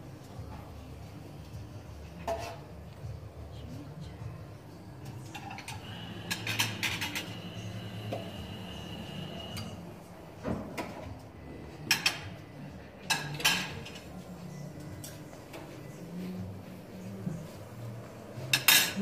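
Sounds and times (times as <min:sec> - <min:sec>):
plates and cutlery clinking: 0:05.1 - 0:09.9, 0:11.8 - 0:14.4, 0:18.4 - 0:19.0.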